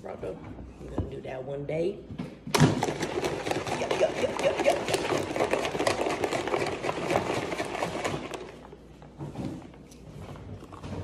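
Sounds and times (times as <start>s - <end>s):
shaker bottle rattling slosh: 2.7s - 8.8s.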